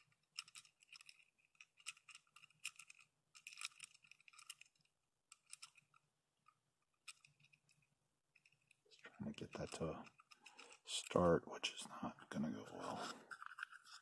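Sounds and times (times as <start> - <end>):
small hardware clicking and scraping: 0.0 - 11.3, 12.8 - 14.0.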